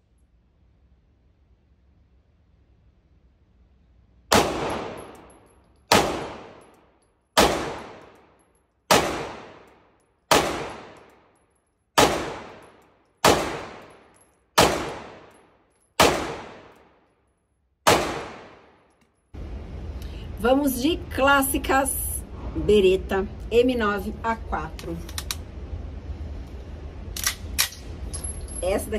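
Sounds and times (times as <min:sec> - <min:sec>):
pistol shots echoing: 0:04.3 - 0:05.3, 0:05.9 - 0:06.8, 0:07.4 - 0:08.2, 0:08.9 - 0:11.2, 0:12.0 - 0:15.4, 0:16.0 - 0:17.0, 0:17.8 - 0:18.8.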